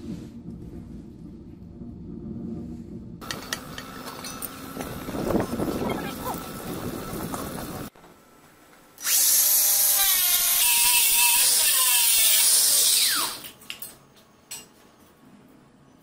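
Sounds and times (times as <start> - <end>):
angle grinder cutting steel: 9.0 - 13.4.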